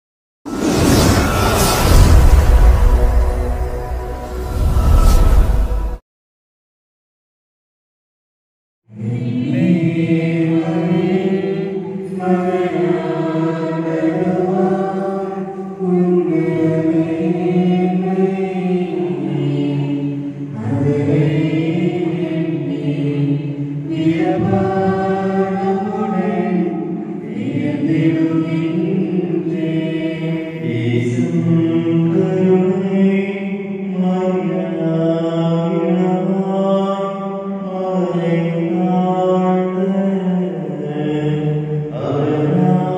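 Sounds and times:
person chanting a hymn: 0:08.9 - 0:42.9.

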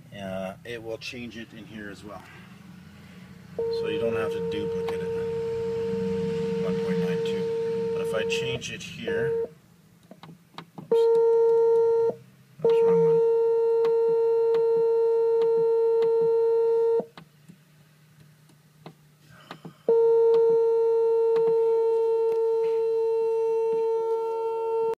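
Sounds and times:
variometer steady tone: 0:02.7 - 0:09.6, 0:10.9 - 0:17.1, 0:19.9 - 0:25.0.

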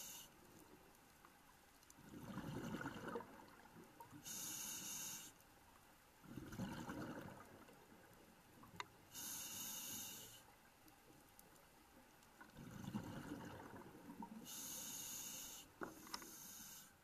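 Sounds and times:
bubbly exhalations underwater: 0:02.0 - 0:03.7, 0:06.2 - 0:07.7, 0:12.6 - 0:14.3
hissing regulator inhalations: 0:04.2 - 0:05.4, 0:09.1 - 0:10.4, 0:14.5 - 0:17.0.

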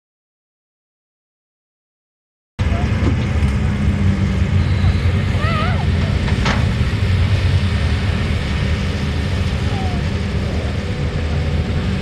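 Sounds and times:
heavy diesel engines rumbling: 0:02.6 - 0:12.0.

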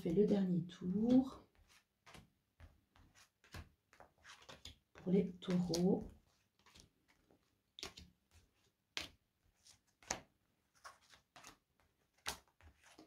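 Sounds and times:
cards tapping onto a table: 0:10.0 - 0:10.3.

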